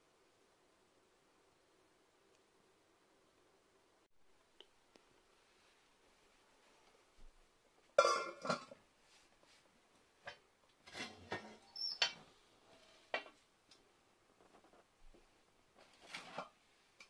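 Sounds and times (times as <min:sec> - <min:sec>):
lid clattering onto pot: 0:08.0 - 0:08.8.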